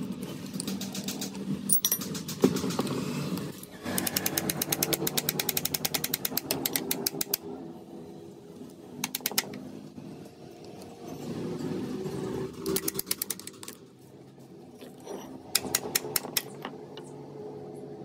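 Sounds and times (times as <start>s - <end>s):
rapid mechanical clicking: 0.2s - 7.4s, 9.0s - 9.6s, 12.6s - 13.8s, 15.4s - 16.6s.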